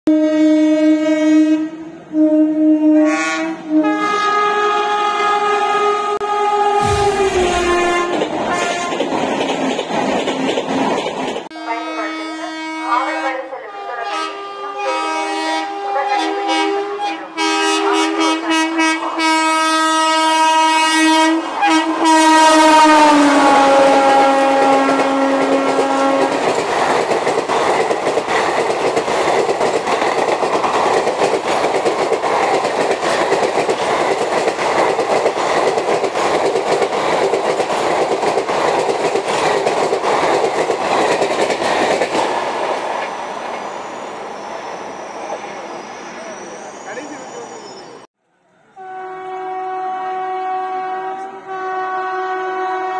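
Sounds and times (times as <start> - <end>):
locomotive air horn: 0.1 - 9.0, 11.5 - 26.4, 48.7 - 52.9
train coaches rattling past: 3.0 - 52.4
wheels clicking over rail joints: 25.7 - 42.2.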